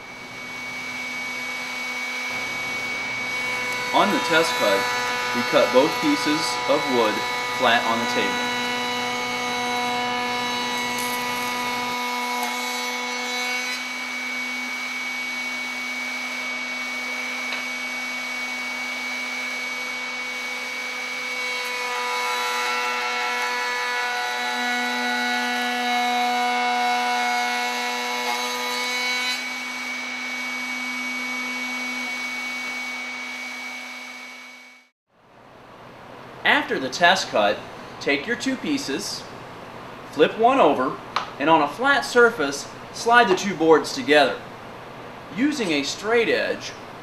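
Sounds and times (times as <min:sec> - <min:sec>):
router whining: 0:00.0 - 0:34.9
router bit cutting wood: 0:00.1 - 0:34.9.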